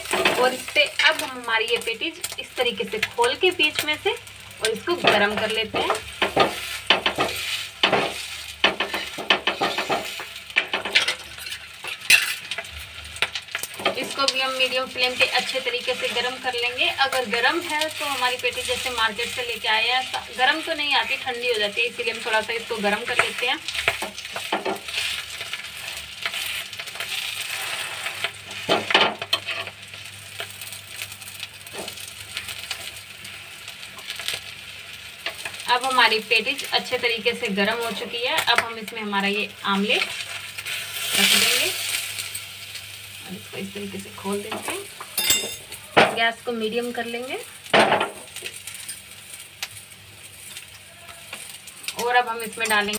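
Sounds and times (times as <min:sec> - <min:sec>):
pastry sizzling in a frying pan: 0:00.0 - 0:52.9
metal spoon scraping a pan: 0:04.8 - 0:12.7, 0:23.1 - 0:29.8.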